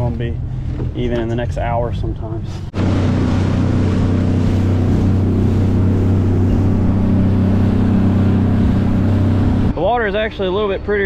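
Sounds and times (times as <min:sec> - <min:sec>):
wind: 0:00.0 - 0:11.0
outboard motor running: 0:02.7 - 0:09.7
water rushing: 0:02.7 - 0:09.8.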